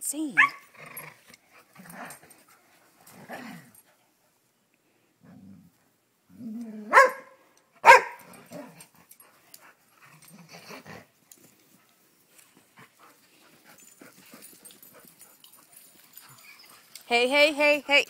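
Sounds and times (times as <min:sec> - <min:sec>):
dog growling: 0:06.3 - 0:07.0
dog barking: 0:06.9 - 0:08.3.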